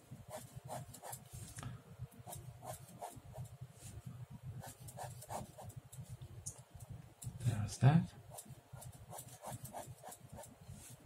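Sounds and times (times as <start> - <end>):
pen scratching on paper: 0.3 - 1.3, 2.3 - 3.5, 4.6 - 5.8, 8.3 - 10.9.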